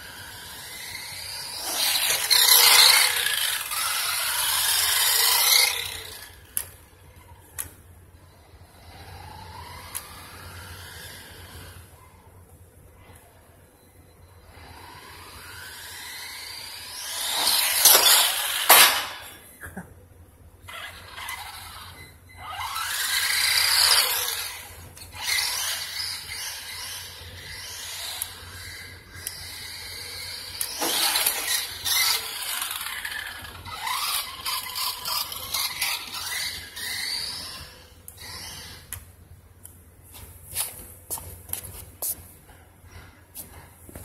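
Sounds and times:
tyres squealing on concrete: 0.0s - 7.7s, 20.7s - 39.0s
toy truck motor whine: 0.0s - 12.0s, 14.0s - 19.4s, 20.6s - 39.1s.

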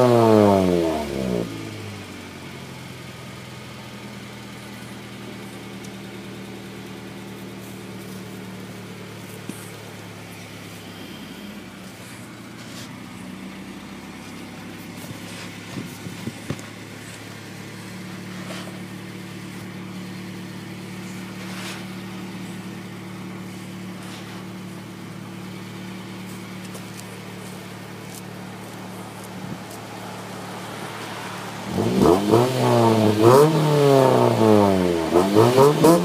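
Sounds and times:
car engine idling: 0.0s - 36.0s.

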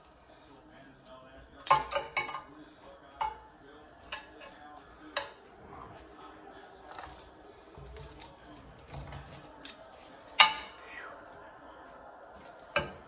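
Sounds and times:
metal tongs clacking: 1.6s - 2.5s, 4.0s - 5.4s.

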